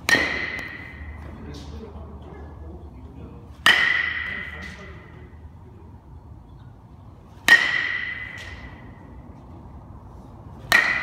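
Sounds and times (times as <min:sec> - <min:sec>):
metal bat hitting ball: 0:00.0 - 0:01.2, 0:03.6 - 0:04.8, 0:07.4 - 0:09.0, 0:10.6 - 0:11.0.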